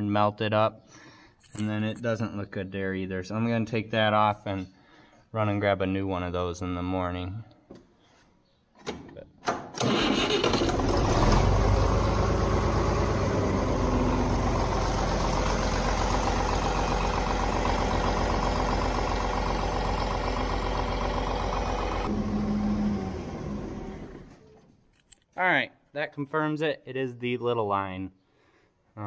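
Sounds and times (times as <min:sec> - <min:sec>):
tractor engine starting and idling: 0:09.4 - 0:24.7.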